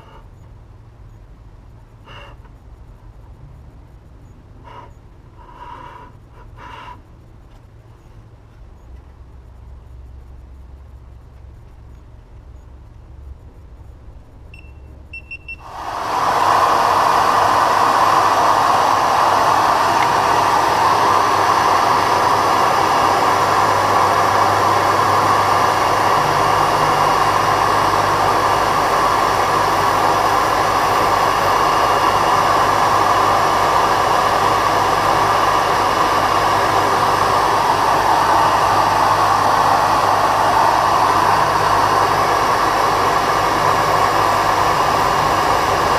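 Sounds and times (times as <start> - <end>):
short electronic beeps: 14.5 - 15.6
vacuum cleaner running: 15.6 - 45.9.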